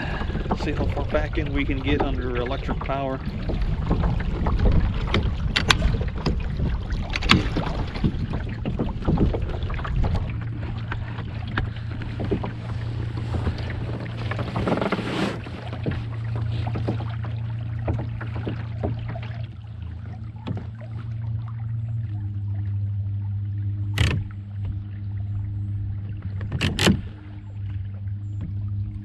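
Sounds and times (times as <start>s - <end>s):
wind buffeting microphone: 0.0s - 14.7s
trolling motor humming: 0.0s - 29.0s
water splashing against hull: 0.0s - 29.0s.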